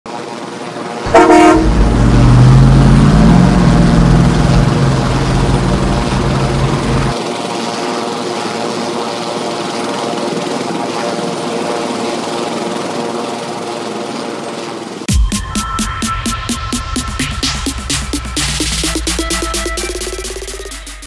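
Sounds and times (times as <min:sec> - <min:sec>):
heavy vehicle engine droning: 0:01.0 - 0:07.4
steady hum: 0:01.0 - 0:08.6
vehicle horn blast: 0:01.1 - 0:02.1.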